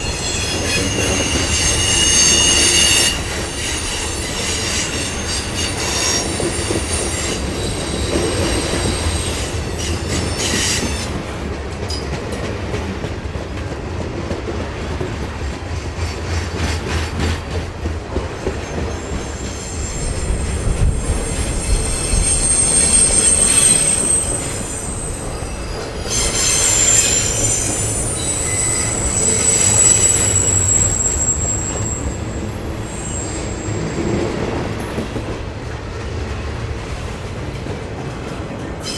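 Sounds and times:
high-pitched wheel squeal: 0.0s - 11.1s, 18.9s - 34.1s
freight train wheels rumbling: 0.0s - 38.9s.

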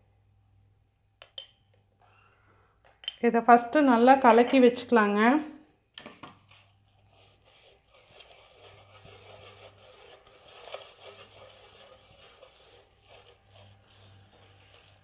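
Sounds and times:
fingers scraping metal bowl: 7.0s - 15.0s.

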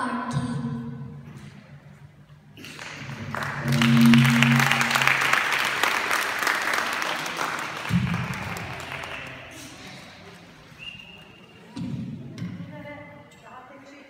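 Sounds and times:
audience clapping: 2.6s - 10.7s.

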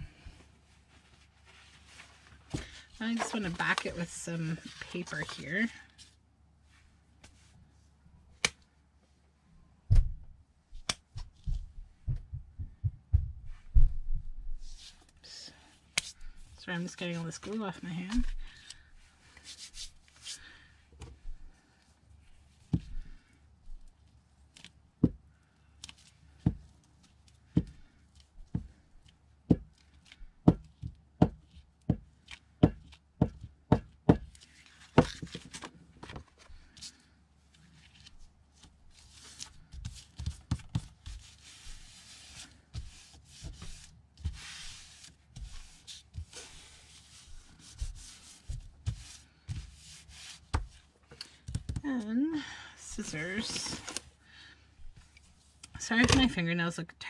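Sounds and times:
paper rubbing and sliding: 37.8s - 50.9s.

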